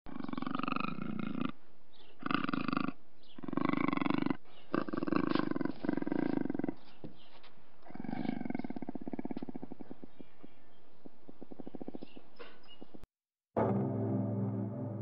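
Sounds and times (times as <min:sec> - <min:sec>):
puma growling: 0:00.1 - 0:06.9, 0:07.8 - 0:12.3.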